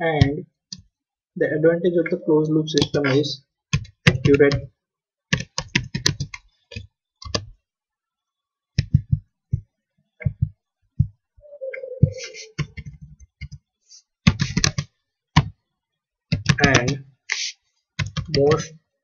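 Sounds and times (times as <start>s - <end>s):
keyboard typing: 2.8s - 4.7s, 5.3s - 7.6s, 8.8s - 15.6s, 16.3s - 17.0s, 18.0s - 18.7s.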